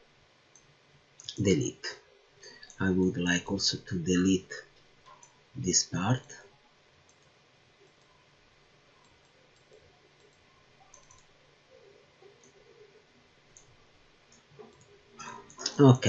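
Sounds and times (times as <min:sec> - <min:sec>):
computer mouse clicks: 0:04.8 - 0:05.4, 0:07.1 - 0:08.2, 0:09.0 - 0:11.3, 0:13.5 - 0:13.7, 0:14.3 - 0:15.8.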